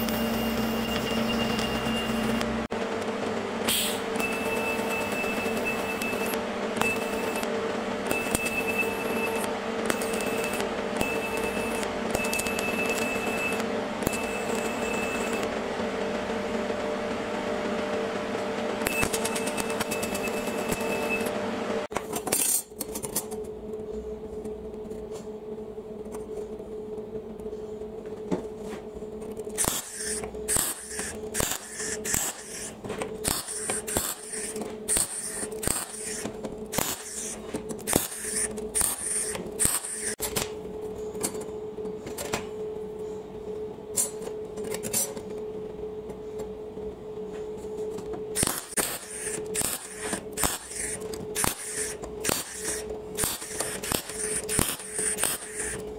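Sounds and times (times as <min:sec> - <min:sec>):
welder hum: 0:00.0 - 0:22.0, 0:29.5 - 0:40.5, 0:48.2 - 0:55.9
welder crackling bursts: 0:29.6 - 0:40.2, 0:48.4 - 0:55.8.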